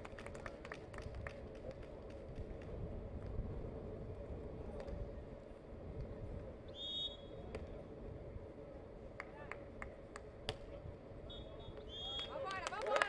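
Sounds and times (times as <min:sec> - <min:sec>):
referee's whistle: 0:06.7 - 0:07.3, 0:11.3 - 0:12.3.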